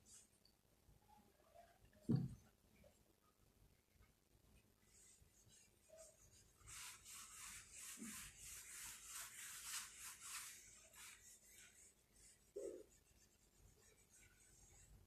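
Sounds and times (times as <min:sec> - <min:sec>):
rubbing strokes on a whiteboard: 0:04.6 - 0:15.0.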